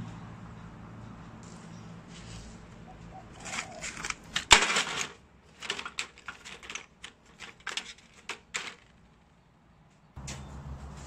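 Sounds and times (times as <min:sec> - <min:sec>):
drill bits clattering in metal tray: 0:03.4 - 0:09.0.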